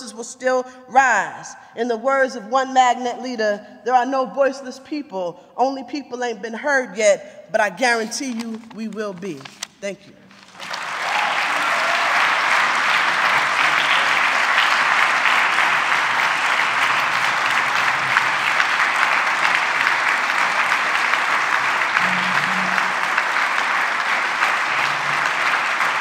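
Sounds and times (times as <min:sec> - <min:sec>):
audience applauding: 0:10.3 - 0:26.0.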